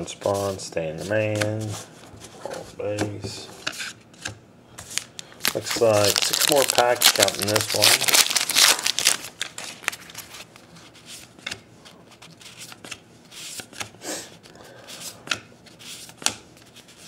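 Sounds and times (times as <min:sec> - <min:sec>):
cards sliding rustle: 0:03.6 - 0:17.0.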